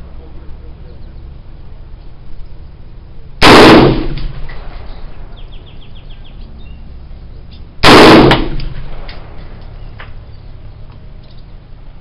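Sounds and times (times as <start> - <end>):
rifle shot: 3.4 - 5.1, 7.8 - 9.6.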